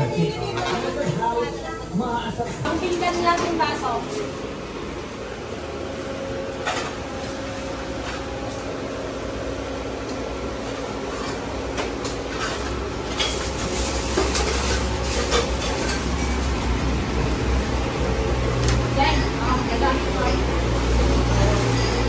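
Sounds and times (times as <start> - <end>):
dishes and utensils clinking: 0.0 - 1.4, 11.2 - 16.6, 18.6 - 22.0
steady hum: 0.0 - 22.0.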